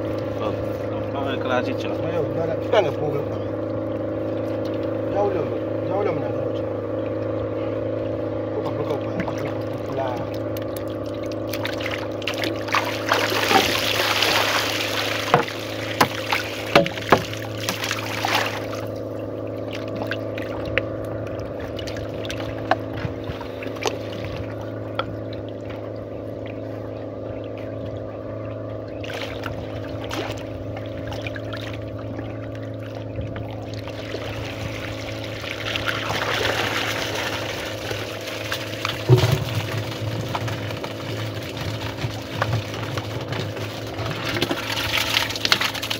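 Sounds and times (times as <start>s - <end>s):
river water splashing and trickling: 0.0s - 45.9s
steady motor hum: 0.0s - 45.9s
water pouring off bucket trap: 11.3s - 18.8s, 35.5s - 45.9s.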